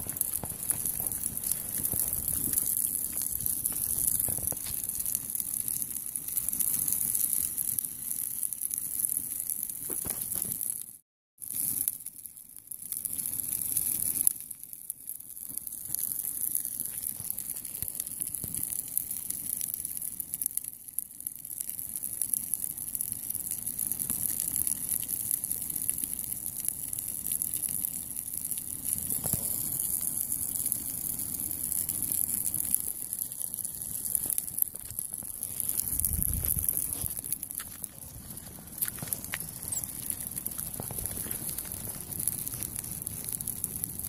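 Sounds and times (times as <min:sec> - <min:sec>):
fire crackling and popping: 0:00.0 - 0:44.0
flames rushing hiss: 0:33.7 - 0:44.0.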